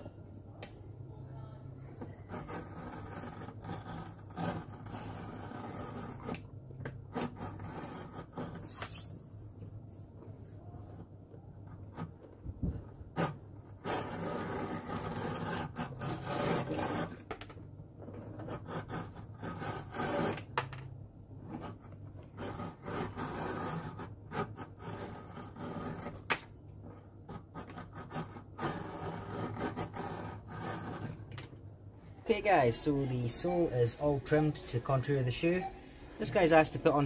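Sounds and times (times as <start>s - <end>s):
rough rasping strokes on leather: 2.2s - 6.4s, 13.0s - 17.2s, 18.3s - 20.4s, 21.5s - 26.3s, 27.2s - 31.2s.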